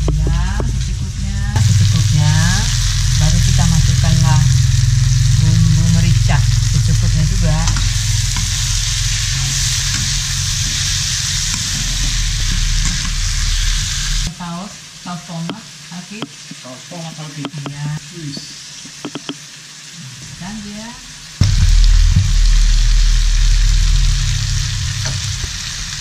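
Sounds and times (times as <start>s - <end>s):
low rumble: 0.0s - 14.3s, 21.4s - 26.0s
vegetables sizzling in a wok: 0.0s - 26.0s
spatula scraping a wok: 7.4s - 14.3s.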